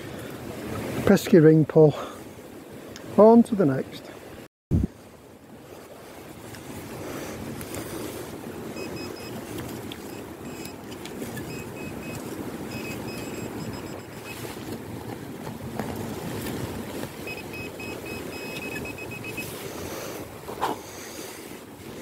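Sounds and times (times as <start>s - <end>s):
wind on microphone: 4.7s - 22.0s
metal detector pinpointer beeping: 8.8s - 9.4s, 10.1s - 14.4s, 17.2s - 19.5s.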